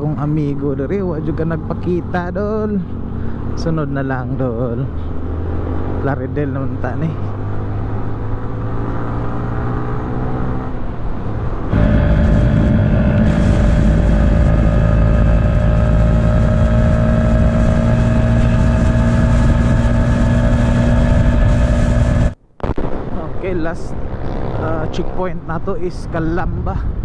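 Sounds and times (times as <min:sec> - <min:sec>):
road and wind noise: 0:00.0 - 0:27.0
motorcycle engine running: 0:11.7 - 0:22.4.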